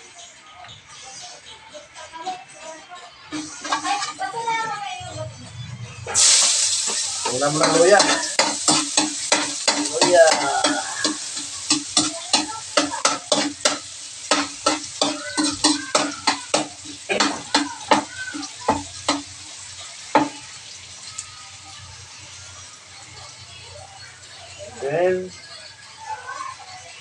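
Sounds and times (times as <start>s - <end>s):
ginger sizzling in hot oil: 2.0s - 27.0s
metal ladle scraping a wok: 3.3s - 4.4s, 6.1s - 18.1s.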